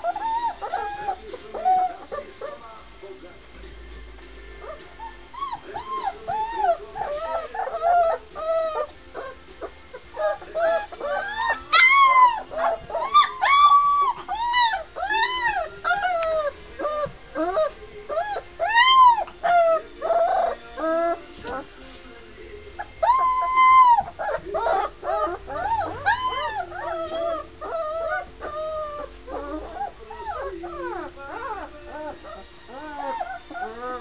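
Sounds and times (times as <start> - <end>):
puppies whimpering and squealing: 0.0 - 2.8, 4.4 - 34.0.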